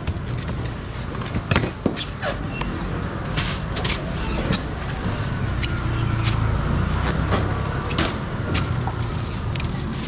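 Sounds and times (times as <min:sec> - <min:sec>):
sharp knocks and clatter: 0:07.1 - 0:09.1.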